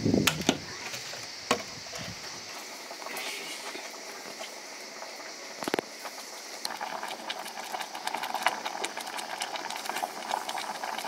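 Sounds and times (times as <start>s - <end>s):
food crackling in a pan: 0.2s - 11.0s.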